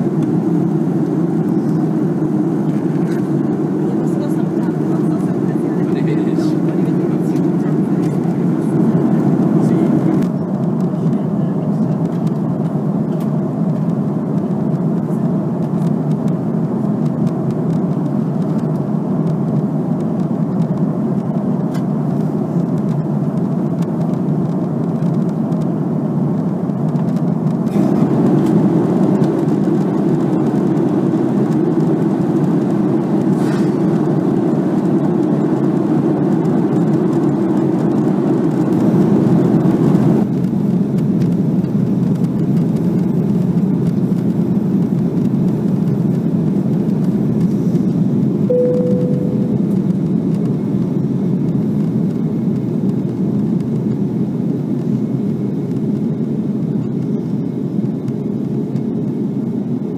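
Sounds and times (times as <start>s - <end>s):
jet engine rush: 0.0s - 24.3s.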